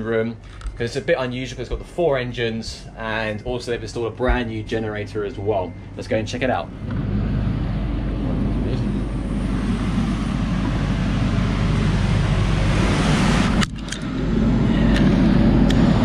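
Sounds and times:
low hum: 0.0s - 16.0s
ventilation blowers whirring: 0.0s - 16.0s.

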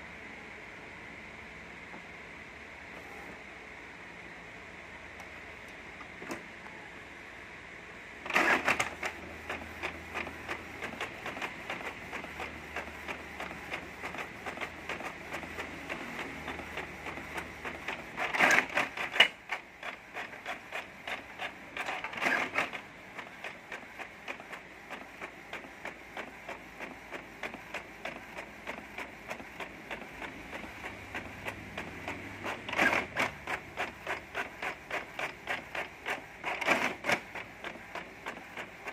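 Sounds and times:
printer mechanical hum: 0.0s - 38.9s
printer whirring bursts: 8.2s - 38.9s.

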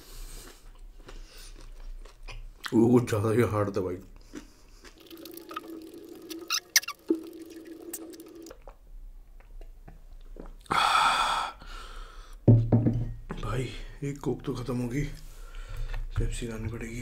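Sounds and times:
chewing with wet clicks: 0.3s - 2.8s, 4.1s - 7.0s, 7.6s - 10.7s
gulping a drink: 4.2s - 8.8s
breathy exhale: 10.7s - 12.4s.

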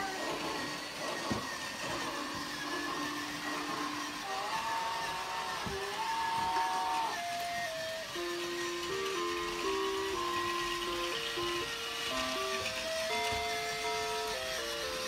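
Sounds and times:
toy train motor whir: 0.0s - 15.0s
electronic melody: 6.1s - 15.0s.

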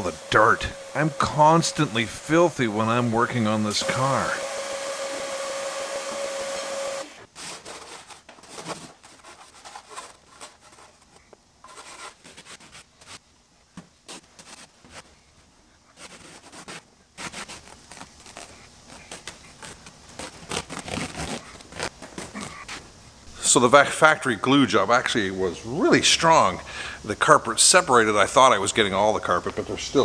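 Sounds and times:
shop vacuum whining: 0.0s - 7.3s
carpet scraping and tearing: 15.9s - 22.8s.

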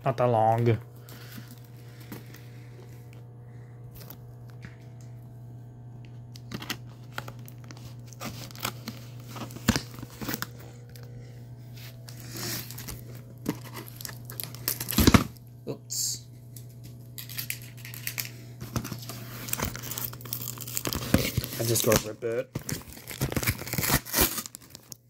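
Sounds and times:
steady low hum: 0.0s - 23.2s
fingers tearing cardboard box: 22.6s - 24.8s.

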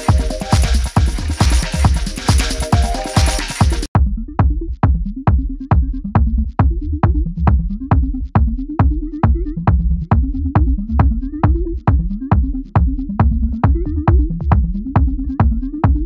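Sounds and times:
electronic dance music: 0.0s - 3.9s
bassline: 0.0s - 16.0s
kick drum: 0.0s - 16.0s.

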